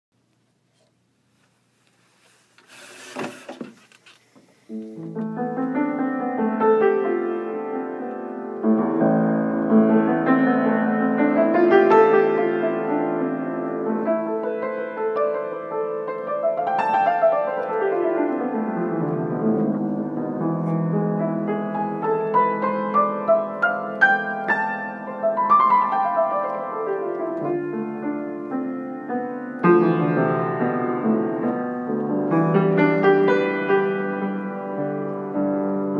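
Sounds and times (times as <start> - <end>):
acoustic piano chords and arpeggios: 4.7 - 35.9.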